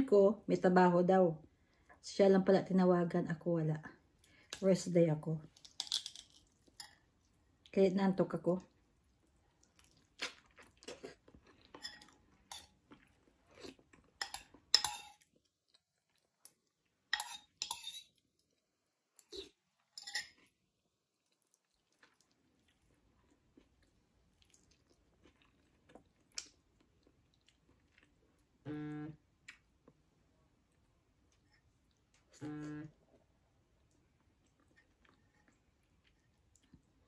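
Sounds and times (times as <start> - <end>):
wet chewing and mouth smacking: 9.2 - 14.7, 21.1 - 28.5, 33.8 - 37.0.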